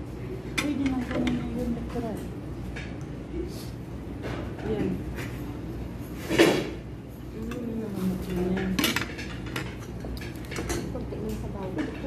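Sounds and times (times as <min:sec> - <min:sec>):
cutlery and dishes clinking: 0:04.2 - 0:12.0
utensils clicking against plates: 0:07.2 - 0:12.0.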